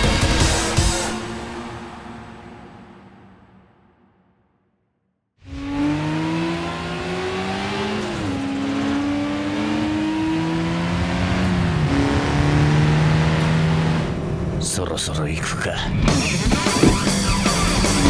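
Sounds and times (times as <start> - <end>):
racing car engines revving: 5.4 - 18.0.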